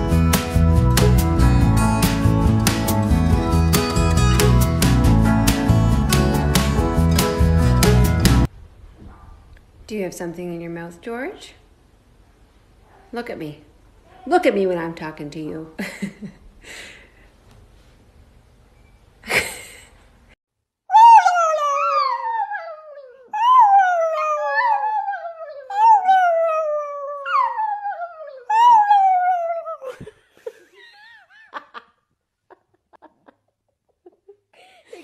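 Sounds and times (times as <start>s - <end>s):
dog howling: 20.9s - 29.9s.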